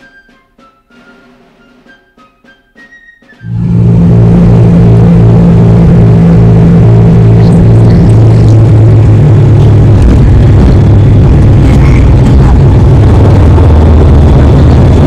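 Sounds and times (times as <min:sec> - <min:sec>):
propeller plane engine drone: 0:03.4 - 0:15.0.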